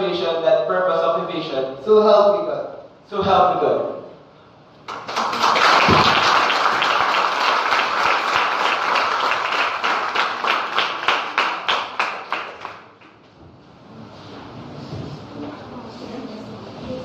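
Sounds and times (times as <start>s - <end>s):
audience applauding: 4.9s - 13.0s.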